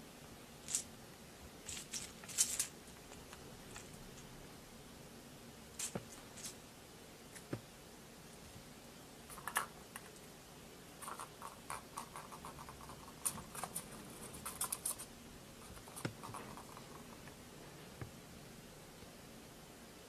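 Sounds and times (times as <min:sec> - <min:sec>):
kitten scratching plastic toy: 0:11.0 - 0:15.1, 0:15.7 - 0:18.0.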